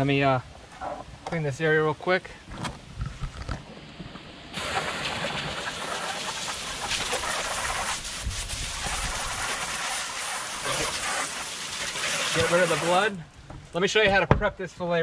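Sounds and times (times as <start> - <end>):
hose nozzle spraying water: 4.6 - 13.2.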